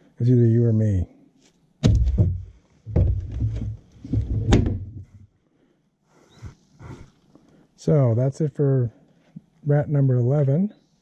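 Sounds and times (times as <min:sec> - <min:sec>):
plastic bin lid knocking shut: 0:01.8 - 0:03.6
hollow thump in plastic bin: 0:01.8 - 0:05.1.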